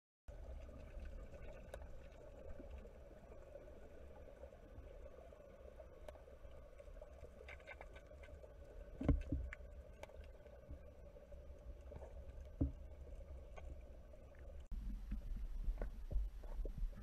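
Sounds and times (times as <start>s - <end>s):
underwater low rumble: 0.3s - 17.0s
dull knocks underwater: 9.0s - 9.6s, 12.5s - 13.0s, 14.7s - 17.0s.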